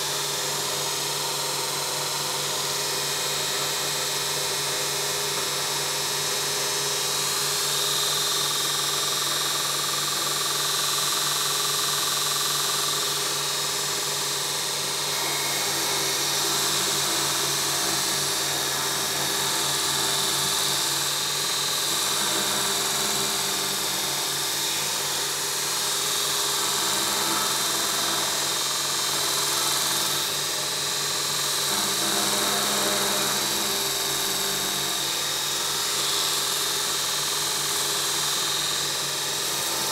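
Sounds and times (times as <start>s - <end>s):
belt grinder grinding metal: 14.3s - 39.9s.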